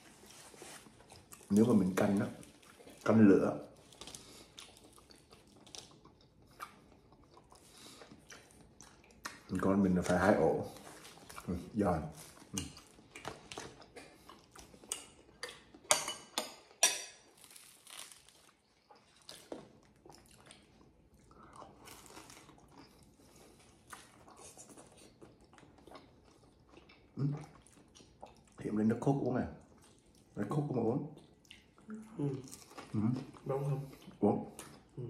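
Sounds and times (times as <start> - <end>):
quiet chewing: 0.0 - 15.9, 17.4 - 35.0
bread crust crunching: 17.3 - 19.8.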